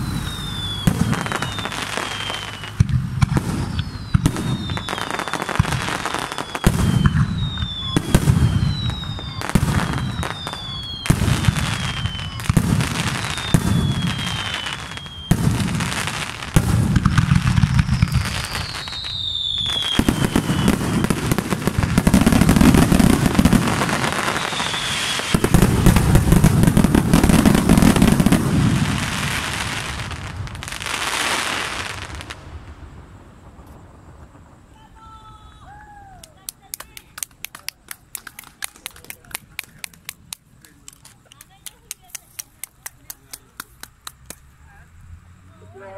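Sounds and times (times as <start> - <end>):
falling whistle: 0.0 - 2.8, 3.6 - 15.5, 17.8 - 21.4, 24.2 - 25.3
firework booms and crackling: 0.0 - 44.5
firework shells bursting: 36.2 - 44.6.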